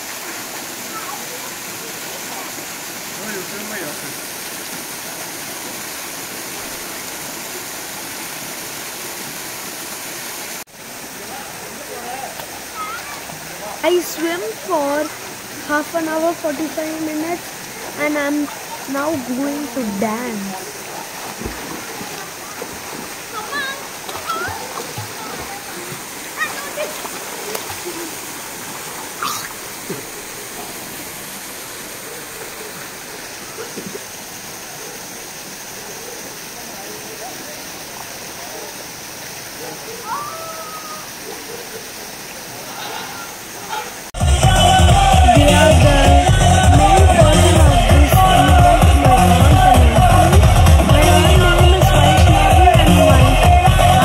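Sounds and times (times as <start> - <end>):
swimmer splashing: 0.0 - 44.2
water rushing in a pool: 0.0 - 54.0.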